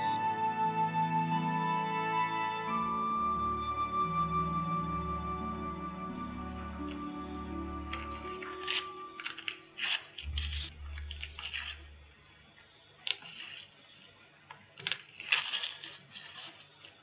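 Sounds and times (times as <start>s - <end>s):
garlic skins crackling and tearing: 6.4s - 17.0s.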